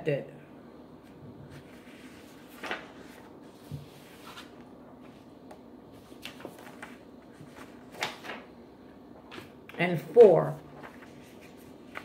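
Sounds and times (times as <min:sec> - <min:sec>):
paper rustling: 0:01.5 - 0:08.6, 0:09.2 - 0:09.6, 0:10.5 - 0:12.0.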